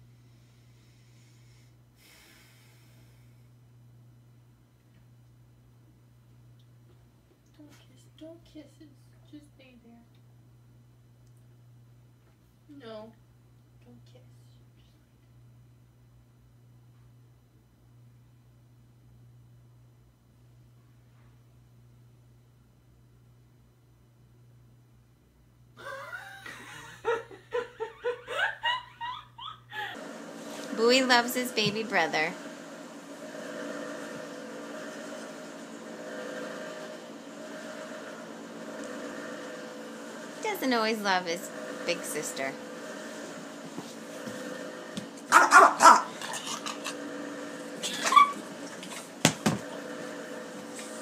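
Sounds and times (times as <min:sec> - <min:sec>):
faint low hum: 0:00.0 - 0:30.0
person laughing: 0:25.8 - 0:30.0
dog barking: 0:45.3 - 0:46.4, 0:47.9 - 0:48.4
dog high-pitched cry: 0:47.8 - 0:48.4.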